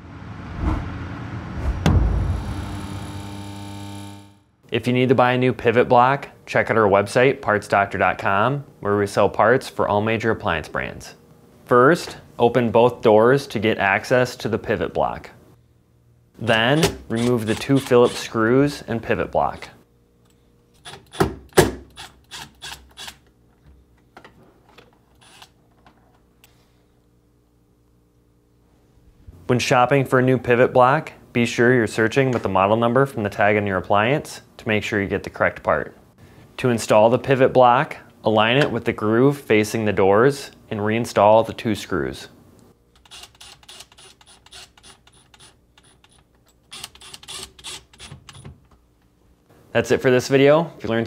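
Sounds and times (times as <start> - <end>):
cordless driver clicking bursts: 43.0 - 48.4.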